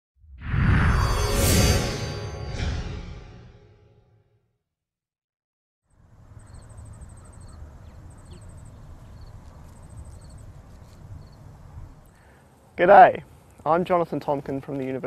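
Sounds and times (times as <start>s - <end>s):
insects ticking rapidly: 6.4s - 10.4s.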